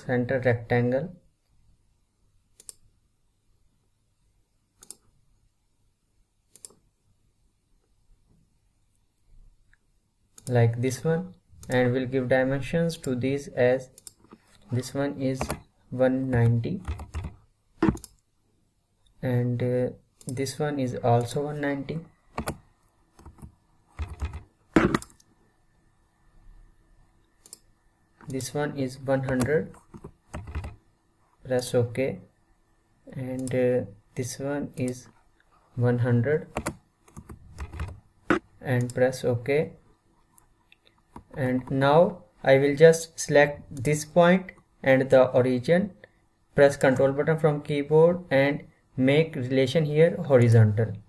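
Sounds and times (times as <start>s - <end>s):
keyboard and mouse clicks: 2.6s - 2.8s, 4.8s - 5.0s, 6.5s - 6.8s, 14.0s - 14.6s, 15.3s - 15.6s, 16.3s - 18.2s, 20.2s - 20.4s, 22.3s - 22.6s, 23.2s - 25.3s, 27.4s - 28.6s, 29.2s - 30.8s, 33.4s - 33.6s, 36.5s - 39.0s
computer mouse button clicks: 17.8s - 18.2s, 23.2s - 25.3s.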